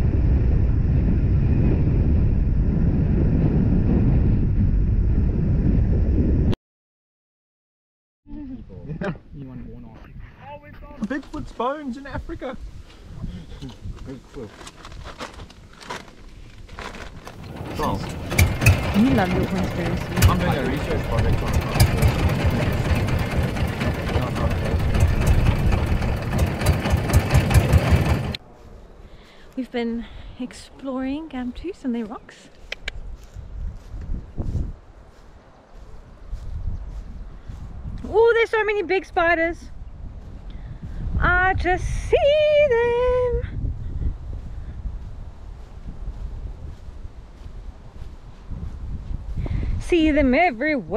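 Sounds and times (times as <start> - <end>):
wind buffeting microphone: 0.0 - 6.6, 9.2 - 29.1, 29.8 - 50.9
outboard motor running: 17.3 - 28.4.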